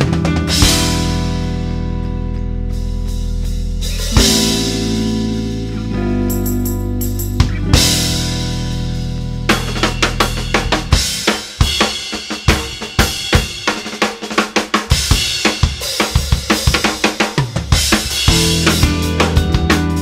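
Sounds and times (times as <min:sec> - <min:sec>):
rapid drum fills: 0:00.0 - 0:01.3, 0:03.7 - 0:05.1, 0:09.5 - 0:20.0
sustained low bass notes: 0:00.0 - 0:11.2.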